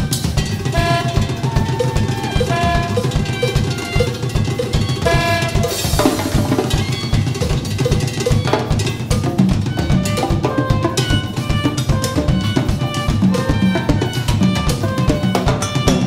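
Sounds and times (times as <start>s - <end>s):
bass drum pulse: 0.0s - 8.0s
hand percussion: 0.0s - 16.0s
saxophone: 0.0s - 16.0s
cymbal crash: 0.7s - 7.2s.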